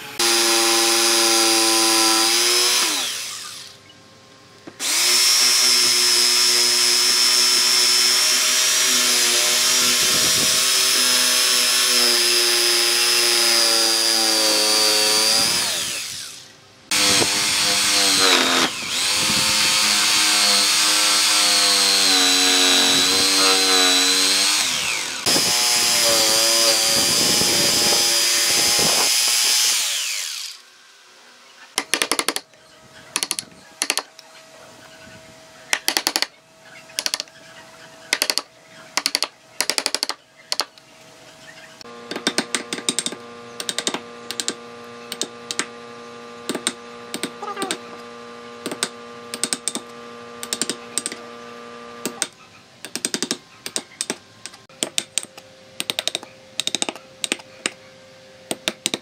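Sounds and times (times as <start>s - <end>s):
jigsaw motor whining: 0.0s - 3.8s, 4.8s - 30.7s.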